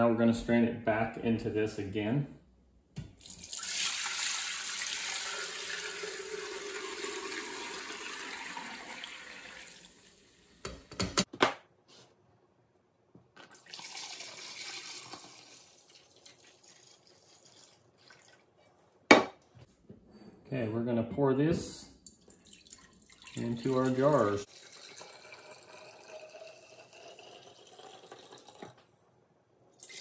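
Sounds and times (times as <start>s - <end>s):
liquid pouring through a strainer: 13.5s - 18.4s, 22.3s - 28.8s.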